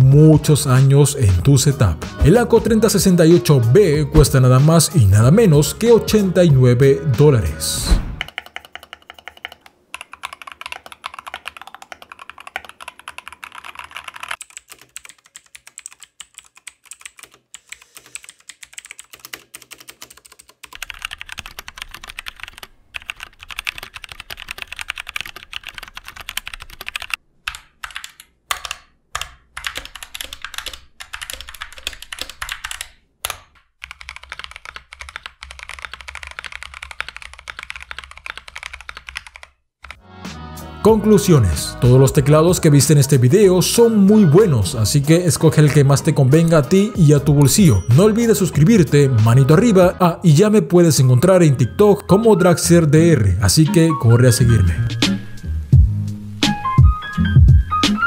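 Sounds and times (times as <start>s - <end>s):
mechanical keyboard typing: 8.2s - 40.0s.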